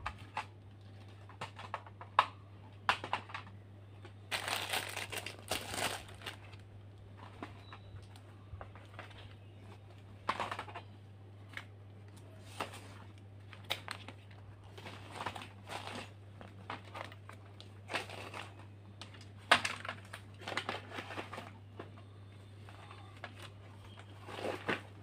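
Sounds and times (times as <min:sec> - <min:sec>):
rustling and crinkling: 0:03.0 - 0:25.0.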